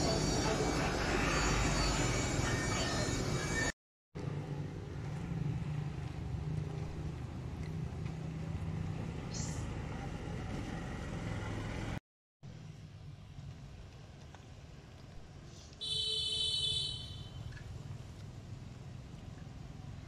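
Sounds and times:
low motor hum: 4.2 - 15.3.

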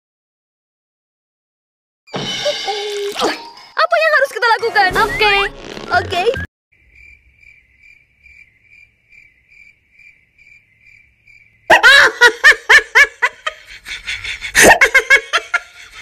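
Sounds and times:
faint cricket chirping: 6.7 - 11.7
loud laughter: 11.7 - 16.0.

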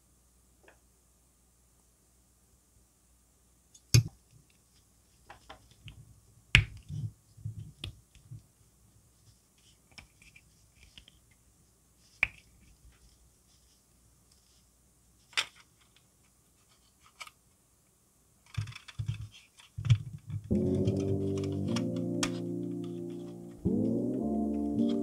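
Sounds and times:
plastic parts clicking: 18.4 - 22.0
plastic parts tapping and rubbing: 18.4 - 22.0.

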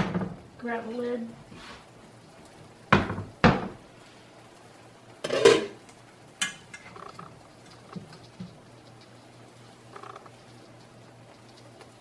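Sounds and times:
metal cookware clattering: 5.2 - 5.8, 6.4 - 7.0.

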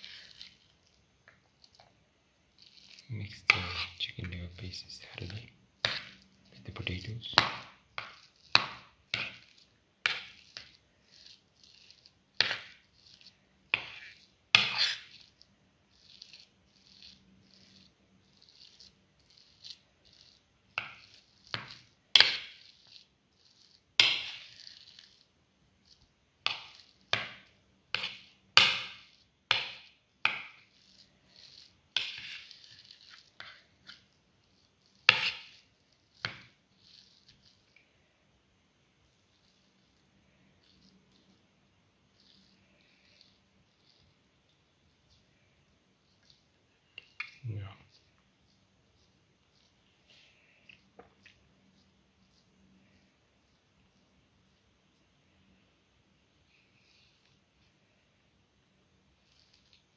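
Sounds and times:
food scraping and tapping on plate: 2.6 - 25.2, 25.9 - 34.1, 34.9 - 37.9, 46.2 - 48.2.

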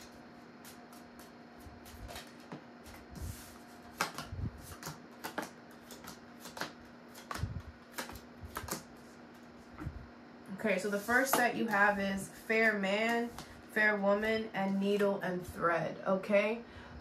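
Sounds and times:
cards shuffling and dealt: 0.0 - 9.8, 11.0 - 13.6.

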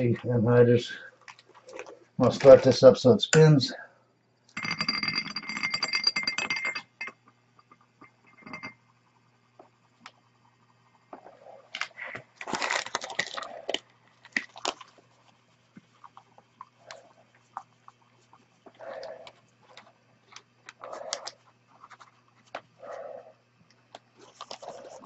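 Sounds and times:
faint motor hum: 0.0 - 25.0
stir bar rattling against glass: 4.6 - 7.2.

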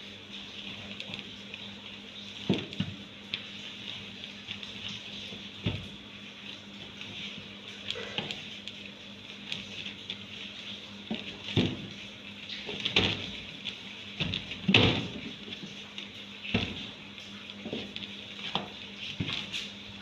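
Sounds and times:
dough thumping against metal tray: 14.2 - 15.4.

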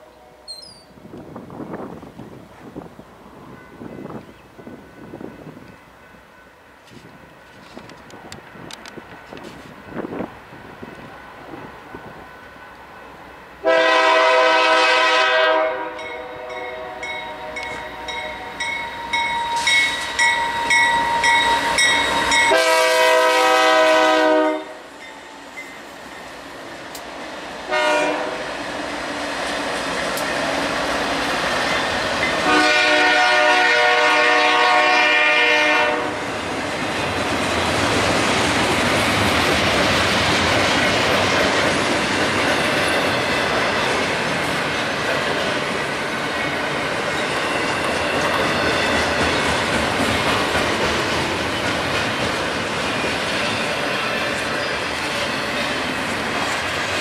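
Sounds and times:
train rumbling past: 0.0 - 57.0
locomotive air horn: 13.6 - 18.5, 20.6 - 24.9, 27.7 - 28.4, 32.4 - 36.3.

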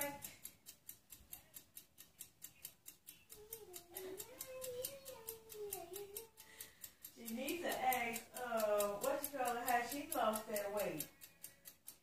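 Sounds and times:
faint fast ticking: 0.0 - 12.0.

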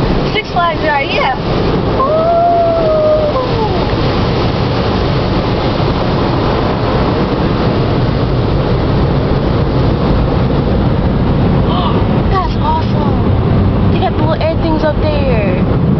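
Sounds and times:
water jets spraying on car: 0.0 - 15.9
falling pitched tone: 2.0 - 4.0.

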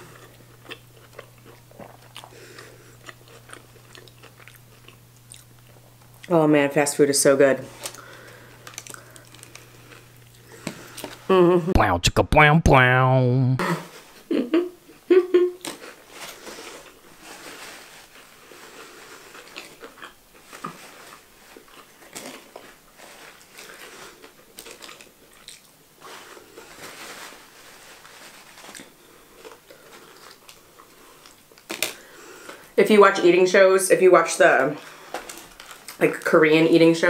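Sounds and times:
person chewing food: 0.0 - 6.3, 7.8 - 11.3, 18.2 - 22.8, 23.4 - 26.4
paper wrapper rustling: 16.0 - 19.8, 26.0 - 30.4.

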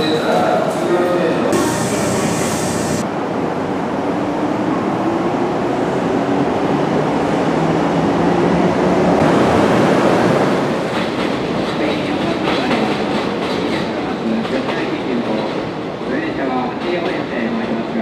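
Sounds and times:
electric train motor hum: 1.5 - 3.0.

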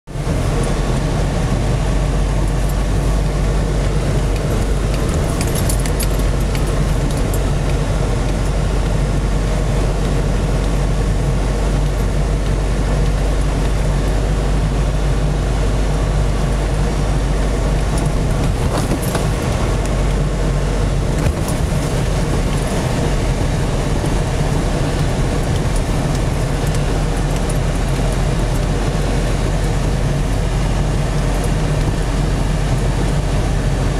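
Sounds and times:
engine and tyre drone: 0.1 - 33.9
light rattles: 3.8 - 8.4.

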